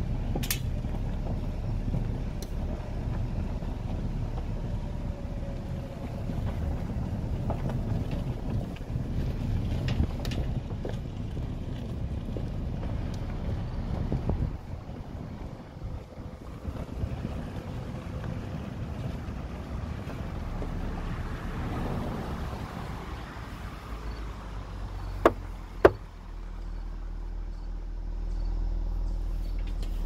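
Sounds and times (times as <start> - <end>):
tyres on gravel road: 0.0 - 30.0
vehicle engine hum: 0.0 - 30.0
sharp knocks: 25.2 - 26.0.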